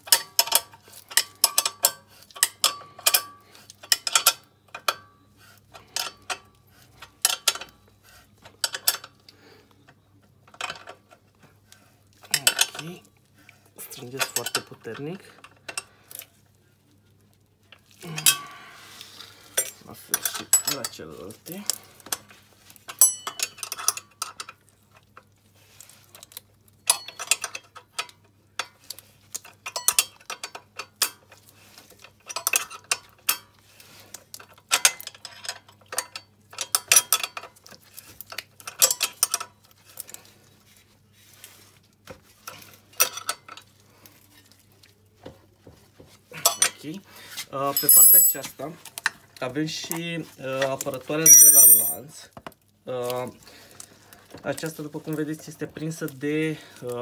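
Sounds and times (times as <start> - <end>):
wrenches clinking on bolts: 47.7 - 48.5, 51.2 - 52.0.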